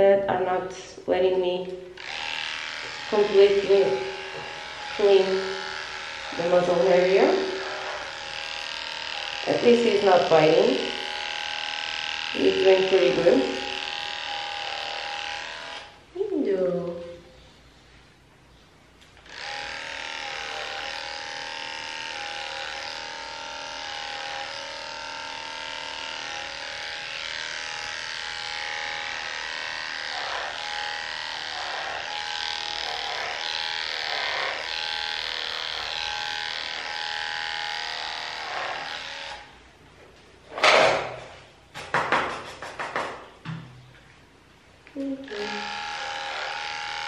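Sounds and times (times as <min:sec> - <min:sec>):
electric clippers buzzing: 0:01.7 - 0:16.0, 0:19.1 - 0:39.6, 0:44.8 - 0:47.0.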